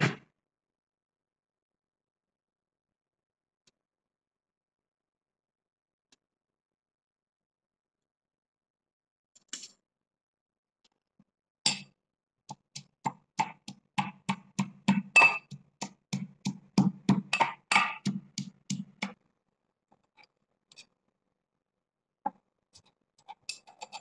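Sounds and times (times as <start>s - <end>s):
metal pestle pounding in mortar: 12.5s - 19.2s.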